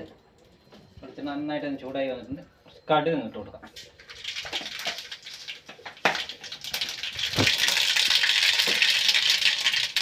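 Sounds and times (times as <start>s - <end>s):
mustard seeds popping in oil: 3.7s - 10.0s.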